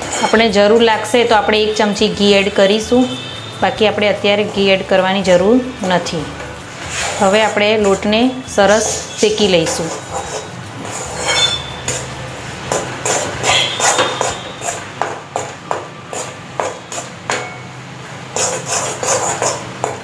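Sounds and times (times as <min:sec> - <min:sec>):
spatula scraping a metal pan: 0:00.0 - 0:01.1, 0:06.7 - 0:17.6, 0:18.2 - 0:20.0.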